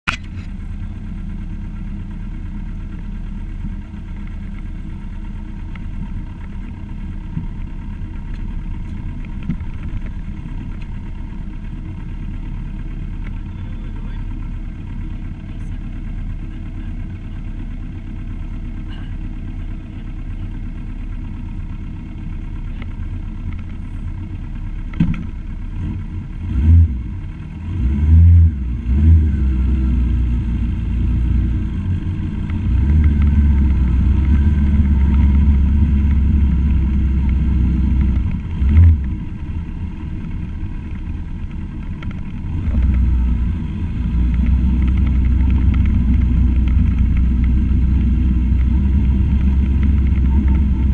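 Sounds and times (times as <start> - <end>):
vehicle rumble: 0.0 - 50.9.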